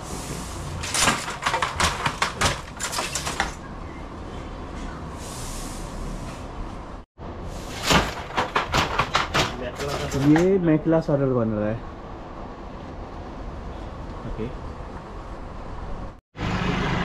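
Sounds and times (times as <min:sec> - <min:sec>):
loom wooden clacks and knocks: 0:00.8 - 0:03.6, 0:07.8 - 0:10.6
loom rattling: 0:00.8 - 0:03.7, 0:07.7 - 0:10.6.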